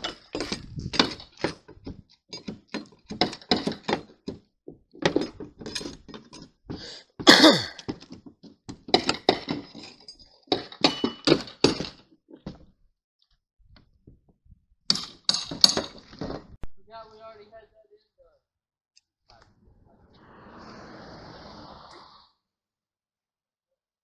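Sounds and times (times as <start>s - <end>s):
hammer knocking and prying nails: 0.0s - 12.7s, 14.9s - 16.6s.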